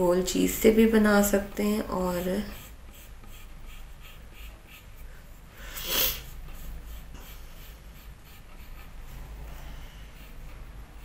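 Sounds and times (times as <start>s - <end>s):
pencil scratching on paper: 0.7s - 11.0s
loud breath: 5.0s - 6.4s.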